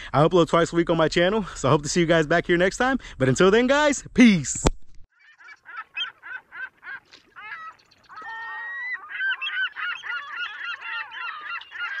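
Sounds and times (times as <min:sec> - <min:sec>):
birds honking: 0:05.2 - 0:12.0.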